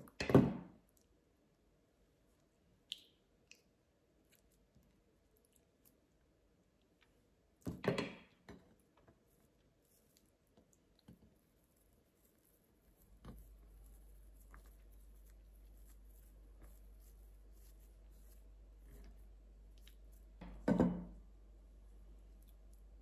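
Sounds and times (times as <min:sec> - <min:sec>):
low steady hum: 0:00.0 - 0:23.0
soft handling sounds: 0:08.4 - 0:20.6.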